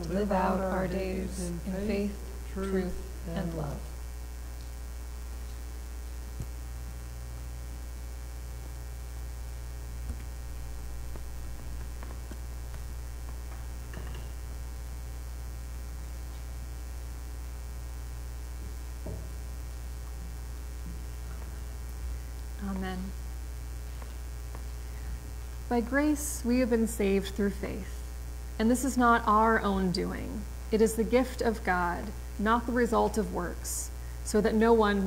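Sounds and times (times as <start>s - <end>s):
low electrical mains hum: 0.0s - 35.0s.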